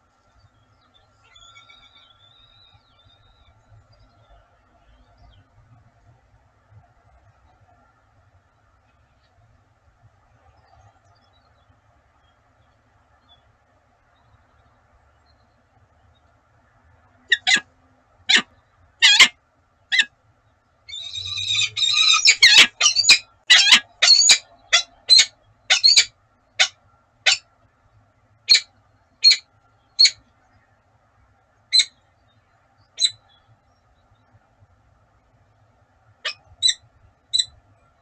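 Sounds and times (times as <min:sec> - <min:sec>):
falcon calling harshly: 0:18.3 - 0:19.3, 0:20.9 - 0:26.7.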